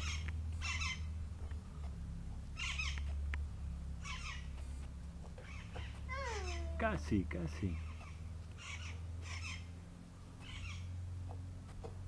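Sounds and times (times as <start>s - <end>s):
steady low hum: 0.0s - 12.0s
high-pitched animal chirps: 5.5s - 6.8s.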